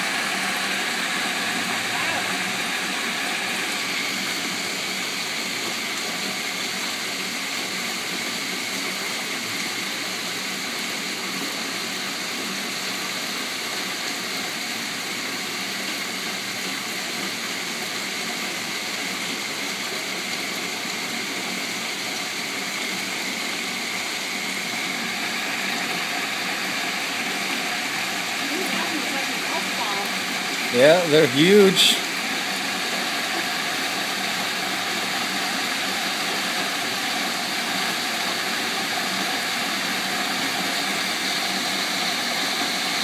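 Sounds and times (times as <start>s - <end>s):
hail and rain pouring down: 27.1s - 31.0s.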